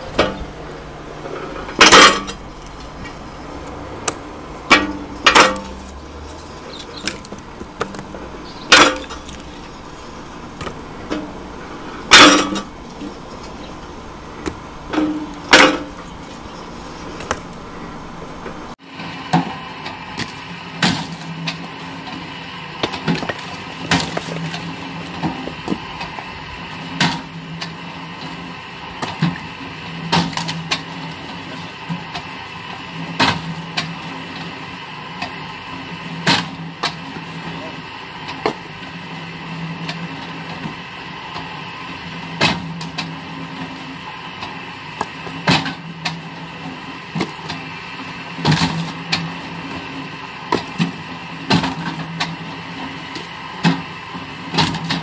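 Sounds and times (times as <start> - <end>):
log splitter motor hum: 0.0 - 55.0
wood splitting crack: 17.2 - 17.6, 22.8 - 26.3.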